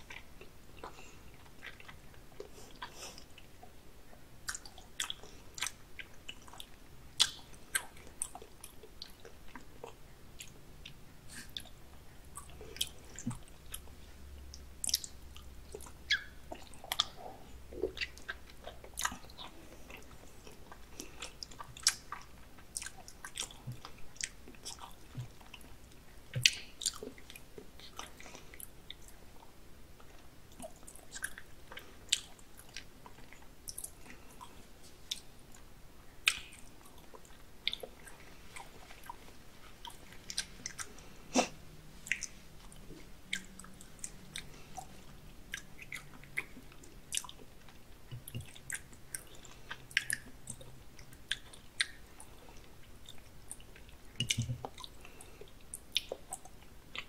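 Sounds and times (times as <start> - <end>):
person chewing raw fish: 0.0 - 57.0.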